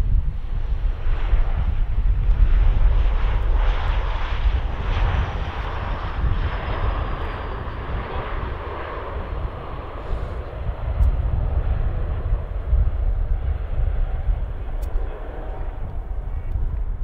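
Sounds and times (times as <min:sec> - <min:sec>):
high engine whine: 0:00.0 - 0:17.0
jet engine rush: 0:00.0 - 0:17.0
wind rumble on microphone: 0:00.0 - 0:17.0.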